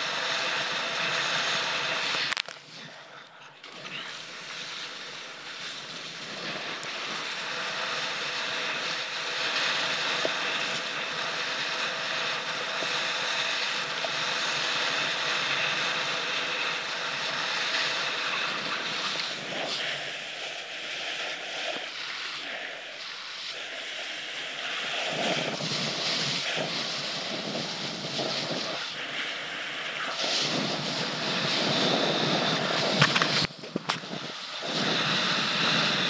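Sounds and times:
water spray rushing against board: 0.0 - 2.8, 3.6 - 36.0
wind buffeting microphone: 25.0 - 29.1, 30.1 - 36.0.

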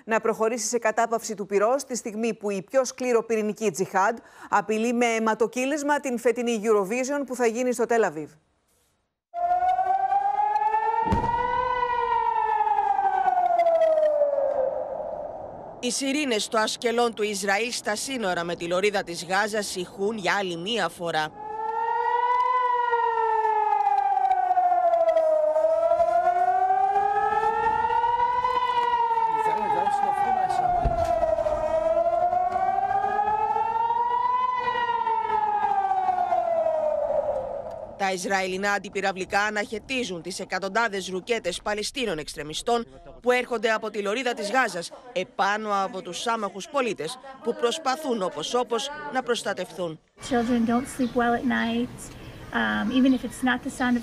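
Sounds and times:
air-raid siren wailing: 9.3 - 15.8, 20.6 - 38.0
low thump: 11.0 - 11.8, 30.6 - 31.6.

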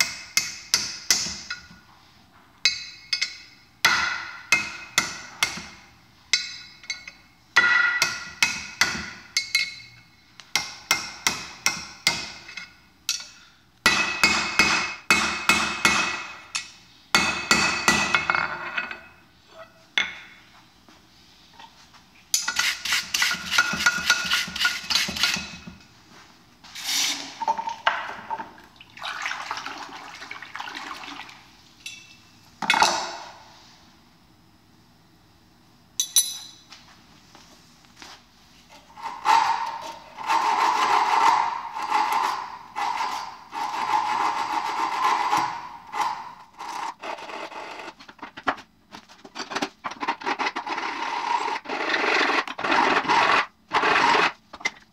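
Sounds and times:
hammer striking steel on anvil: 2.6 - 18.3, 36.0 - 36.6.

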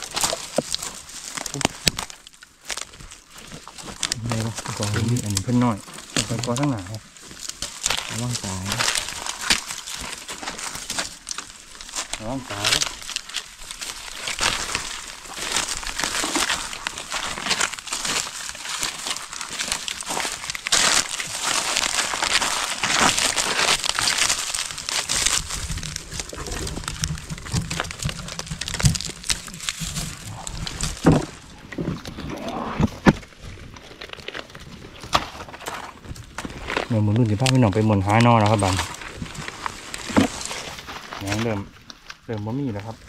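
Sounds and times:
dry leaves and twigs crackling: 0.0 - 43.0
low rumble: 25.4 - 33.0.

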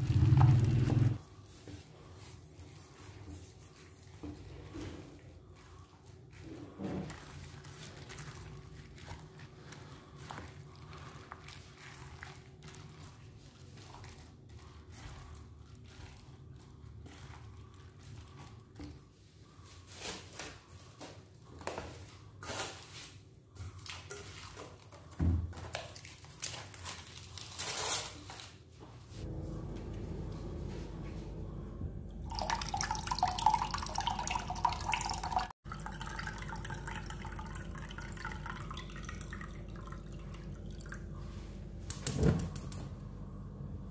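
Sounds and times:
hands squishing meat in marinade: 5.2 - 19.2
cling wrap crinkling and tearing: 25.9 - 28.6.

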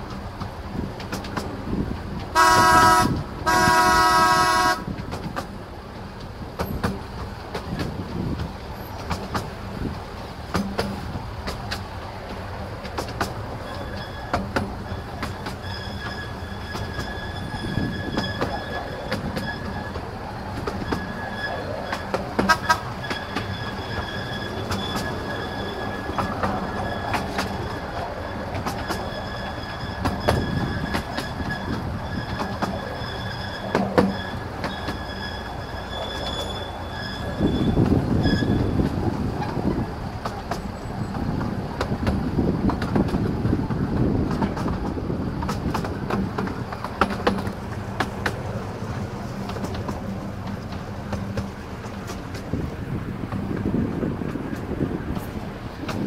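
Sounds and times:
train wheels clicking on rails: 0.0 - 56.0
locomotive horn toot: 2.3 - 5.0, 20.8 - 38.9
faint high wheel squeal: 8.7 - 9.1, 13.4 - 41.4.

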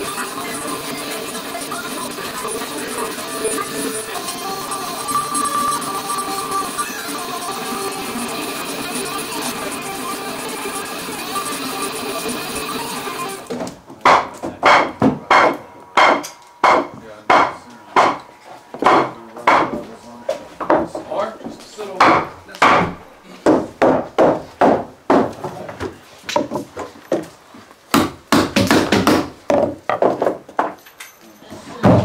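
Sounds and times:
hammer striking wood: 13.5 - 19.8, 22.0 - 25.4, 27.9 - 30.4.

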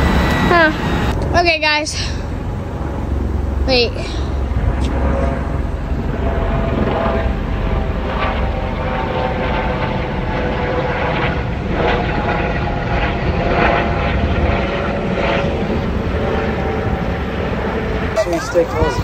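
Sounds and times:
propeller plane engine drone: 0.0 - 19.0.

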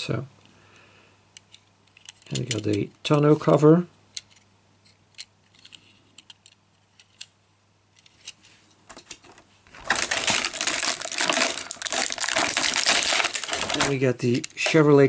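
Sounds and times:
plastic blister tray crackling: 9.0 - 15.0.

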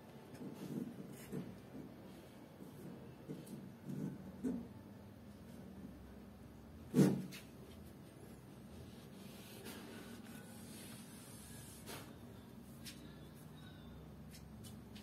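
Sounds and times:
faint steady hum: 7.6 - 15.0.

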